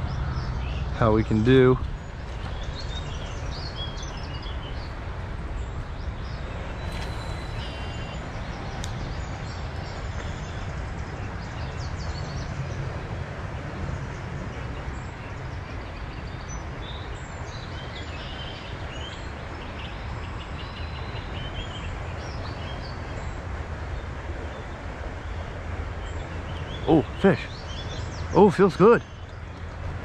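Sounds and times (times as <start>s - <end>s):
birds chirping and singing: 0.0s - 12.5s
low background rumble: 0.0s - 17.6s.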